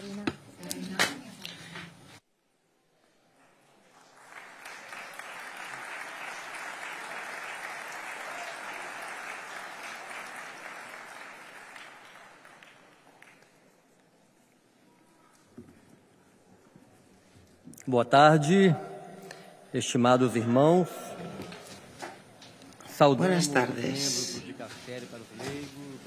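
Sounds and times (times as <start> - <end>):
audience applauding: 3.8 - 13.7.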